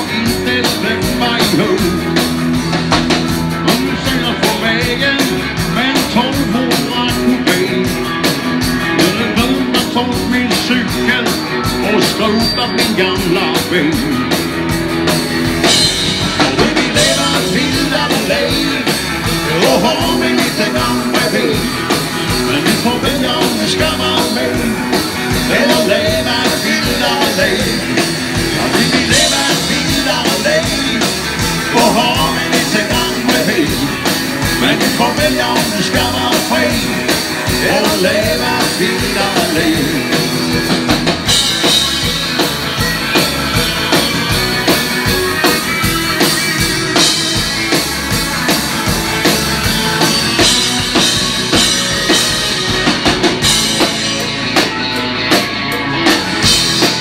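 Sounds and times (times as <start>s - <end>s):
man singing: 0.0s - 2.3s, 3.5s - 14.4s, 16.5s - 40.7s
live band playing: 0.0s - 57.0s.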